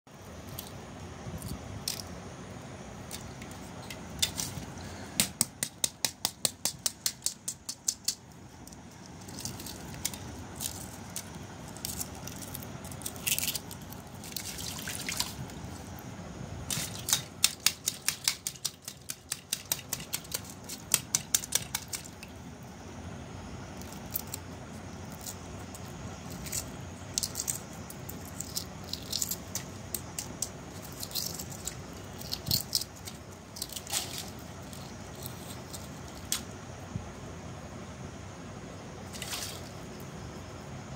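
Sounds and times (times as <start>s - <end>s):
eggshell crackling: 3.0s - 16.0s, 16.6s - 22.5s, 23.7s - 36.5s
water splashing: 14.2s - 15.5s, 39.1s - 39.8s.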